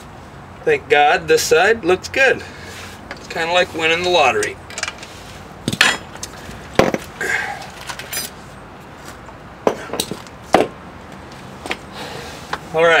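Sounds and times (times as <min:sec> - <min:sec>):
metal clanking on asphalt: 0:04.2 - 0:08.4, 0:09.6 - 0:11.8.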